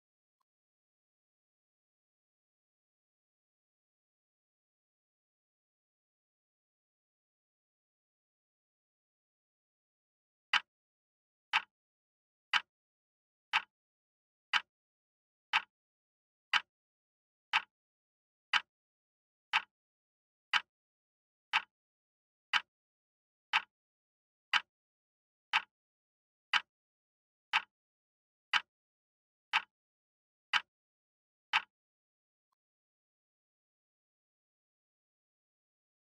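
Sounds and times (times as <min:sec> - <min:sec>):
timer ticks: 0:10.5 - 0:10.7, 0:11.5 - 0:11.7, 0:12.5 - 0:12.7, 0:13.5 - 0:13.7, 0:14.5 - 0:14.7, 0:15.5 - 0:15.7, 0:16.5 - 0:16.7, 0:17.5 - 0:17.7, 0:18.5 - 0:18.7, 0:19.5 - 0:19.7, 0:20.5 - 0:20.7, 0:21.5 - 0:21.7, 0:22.5 - 0:22.7, 0:23.5 - 0:23.7, 0:24.5 - 0:24.7, 0:25.5 - 0:25.7, 0:26.5 - 0:26.7, 0:27.5 - 0:27.7, 0:28.5 - 0:28.7, 0:29.5 - 0:29.7, 0:30.5 - 0:30.7, 0:31.5 - 0:31.7.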